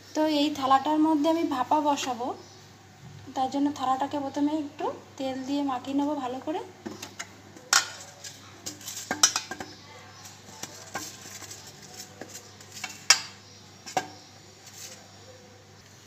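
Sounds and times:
hand rubbing steel plate: 0:06.9 - 0:15.2.

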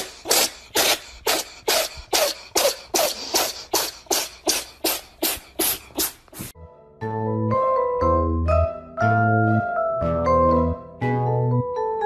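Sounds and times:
wheezing breathy laughter: 0:00.0 - 0:06.2.

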